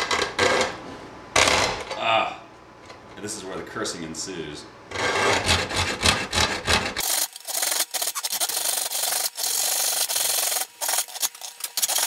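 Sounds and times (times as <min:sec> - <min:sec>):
hacksaw cutting metal: 0:05.0 - 0:12.0.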